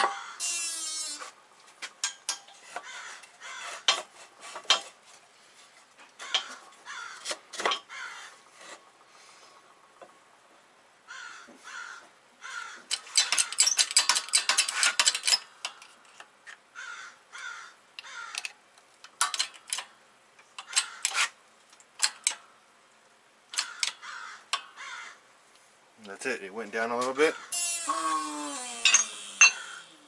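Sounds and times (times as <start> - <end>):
crows cawing: 0.0 - 0.6, 2.8 - 3.9, 6.2 - 8.4, 11.1 - 13.6, 16.8 - 18.6, 20.6 - 21.1, 23.6 - 25.3, 27.2 - 28.4, 29.4 - 30.0.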